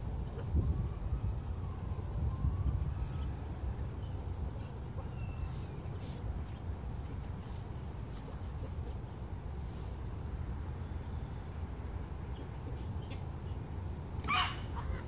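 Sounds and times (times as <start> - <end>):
chickens scratching in dry leaves: 2.6 - 3.7, 4.3 - 6.4, 7.1 - 9.0, 14.0 - 15.0.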